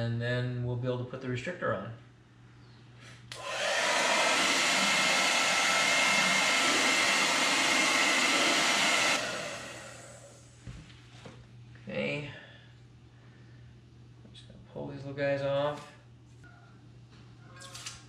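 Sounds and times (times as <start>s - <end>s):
hair dryer blowing with faint whine: 3.3s - 10.6s.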